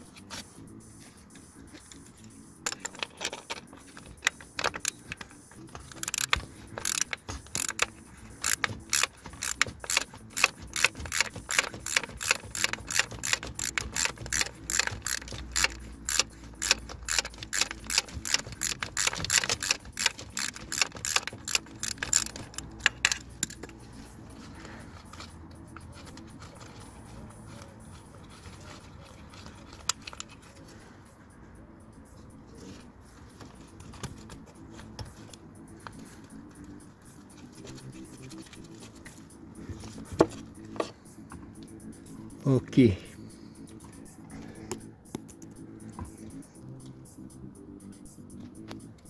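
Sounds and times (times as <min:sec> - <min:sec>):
ratchet wrench clicking: 0:02.6 - 0:23.8.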